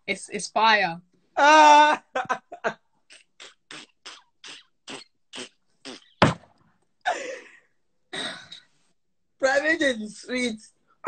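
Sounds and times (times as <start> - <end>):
person laughing: 1.6 - 3.9
sharp knock: 6.2 - 6.6.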